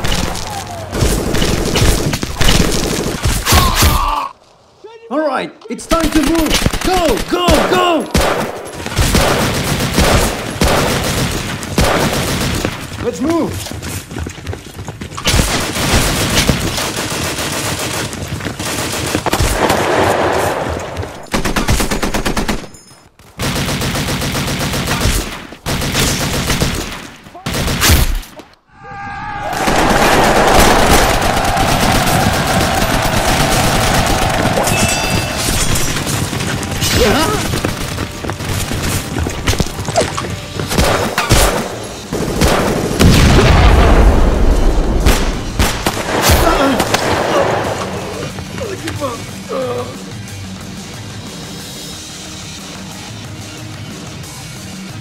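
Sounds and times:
gunshots: 0:05.9 - 0:13.1, 0:15.2 - 0:22.8, 0:23.4 - 0:28.4, 0:29.5 - 0:40.0, 0:40.6 - 0:48.2
background music: 0:29.5 - 0:43.2, 0:44.0 - 0:55.0
automatic machine-gun fire: 0:29.6 - 0:34.7.

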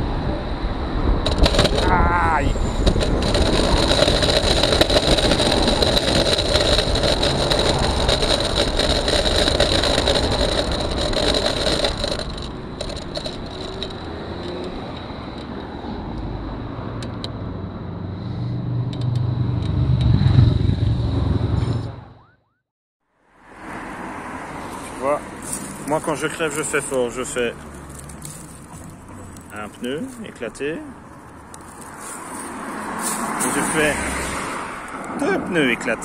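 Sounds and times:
wind noise: 0:00.0 - 0:22.1
motorcycle passing: 0:00.0 - 0:22.3, 0:23.4 - 0:36.0.

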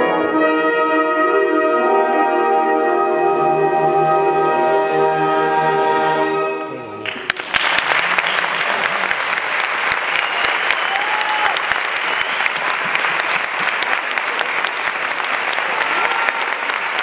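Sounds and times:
audience applauding: 0:07.0 - 0:17.0.

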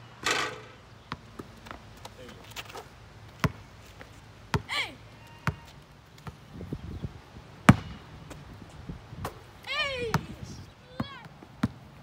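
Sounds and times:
basketball bouncing on concrete: 0:03.4 - 0:03.6, 0:05.4 - 0:06.4, 0:07.7 - 0:08.0, 0:11.0 - 0:11.8.

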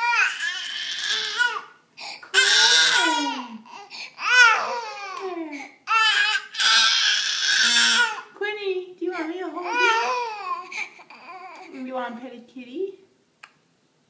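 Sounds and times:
baby crying: 0:00.0 - 0:08.3, 0:09.2 - 0:11.8.

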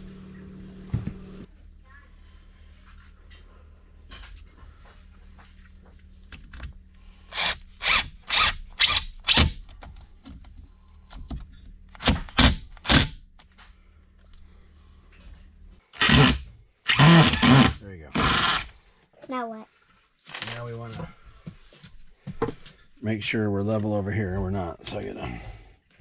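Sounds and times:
cordless drill driving screws: 0:16.0 - 0:18.7.

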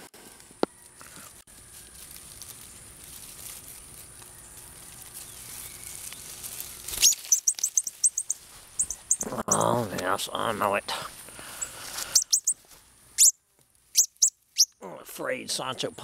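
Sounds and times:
faint outdoor background: 0:00.0 - 0:16.0
cardinal high chips: 0:06.0 - 0:09.8.

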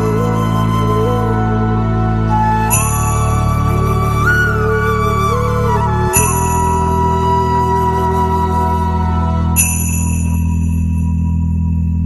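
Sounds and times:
low drone: 0:00.0 - 0:12.0
high bell-like chime: 0:02.7 - 0:04.0, 0:06.1 - 0:07.4, 0:09.6 - 0:12.0.

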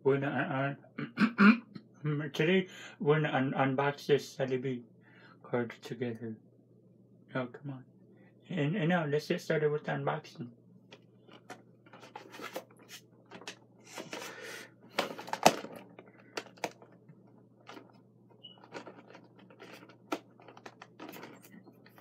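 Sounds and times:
box being opened by hand: 0:11.4 - 0:14.4, 0:15.0 - 0:17.0.

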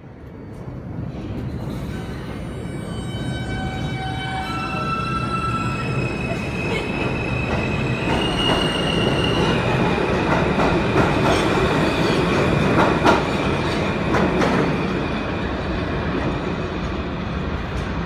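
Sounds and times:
train rumble: 0:00.0 - 0:18.0
high wheel squeal: 0:02.4 - 0:09.7.

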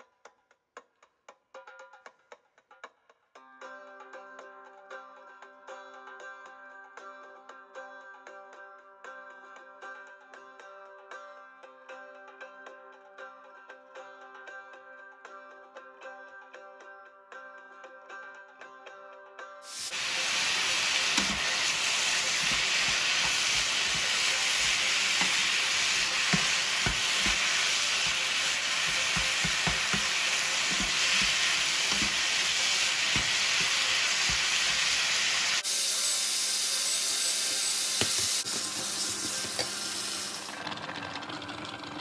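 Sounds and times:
meat sizzling in a pan: 0:19.6 - 0:40.6
wooden spatula stirring and knocking: 0:21.0 - 0:34.8.

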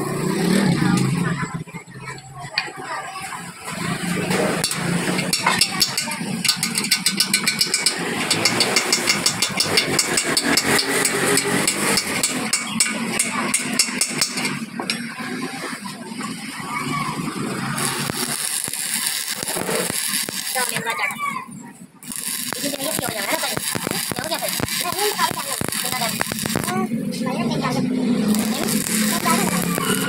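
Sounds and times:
arc welder crackling hiss: 0:03.7 - 0:30.0
hammer striking steel chisel: 0:04.6 - 0:15.0.

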